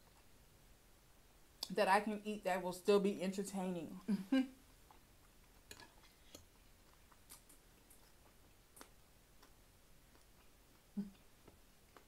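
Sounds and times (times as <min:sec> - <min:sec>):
chewing and lip smacks: 0:04.7 - 0:12.0.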